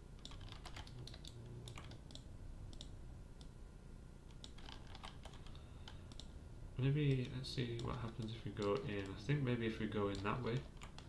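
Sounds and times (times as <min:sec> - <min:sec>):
keyboard and mouse clicking: 0:00.2 - 0:03.5, 0:04.3 - 0:06.3, 0:07.1 - 0:09.2, 0:09.9 - 0:11.0.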